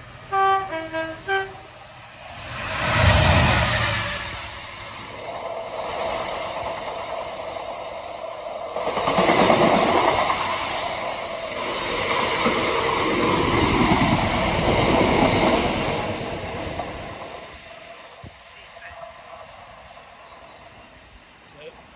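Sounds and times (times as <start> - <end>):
train wheels clattering on rails: 5.2 - 20.6.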